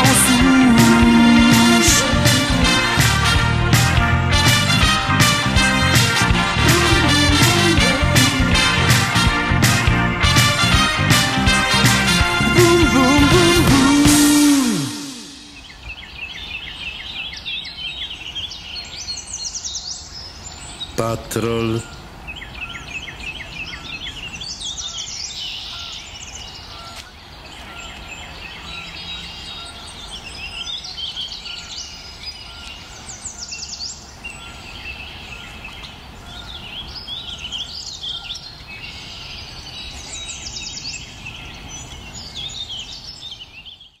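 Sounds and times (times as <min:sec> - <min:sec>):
songbirds singing: 0:14.4 - 0:44.0.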